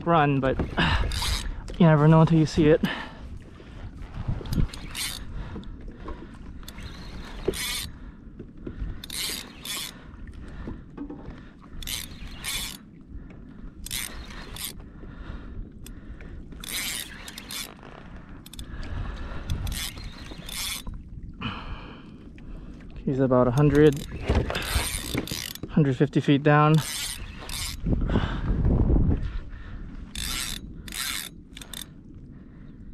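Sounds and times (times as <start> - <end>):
fishing reel drag bursts: 6.7 - 7.9, 9.0 - 10.0, 11.8 - 12.8, 16.6 - 17.7, 26.8 - 27.8, 30.2 - 31.9.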